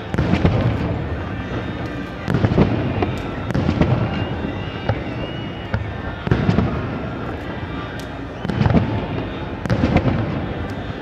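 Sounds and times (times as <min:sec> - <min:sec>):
fireworks booming and cracking: 0:00.0 - 0:11.0.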